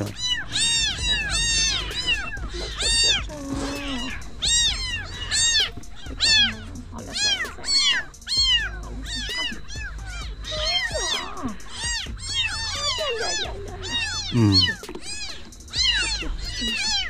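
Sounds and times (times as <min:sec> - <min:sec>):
kittens mewing: 0:00.0 - 0:17.0.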